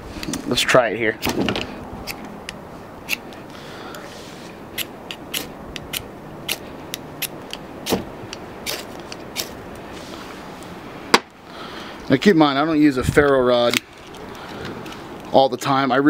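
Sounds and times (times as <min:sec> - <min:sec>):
knife scraping ferrocerium rod: 0:04.0 - 0:06.6, 0:08.6 - 0:09.6.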